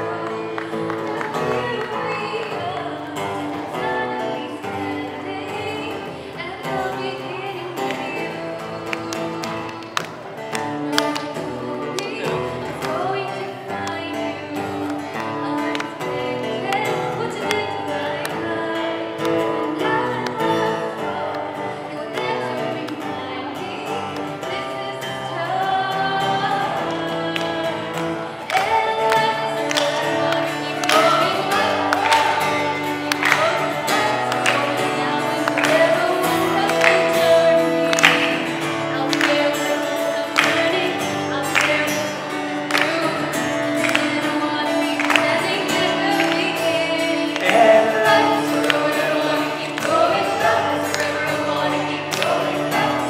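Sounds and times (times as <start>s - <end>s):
woman singing into a microphone: 0.0s - 53.0s
backing music: 26.1s - 53.0s.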